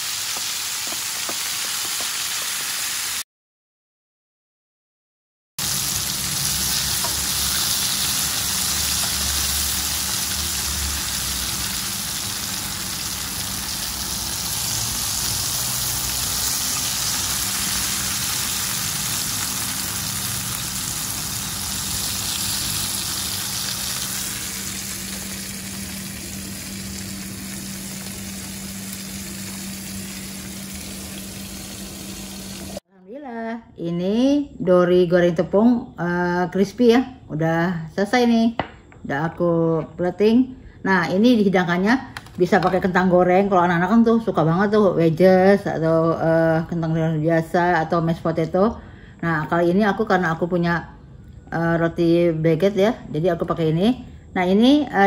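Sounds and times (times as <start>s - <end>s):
fish deep-frying in hot oil: 0.0s - 3.2s, 5.6s - 32.8s.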